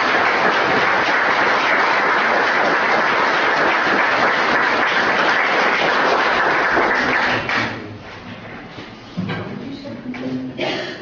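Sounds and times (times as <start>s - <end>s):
people applauding: 0.0s - 7.8s.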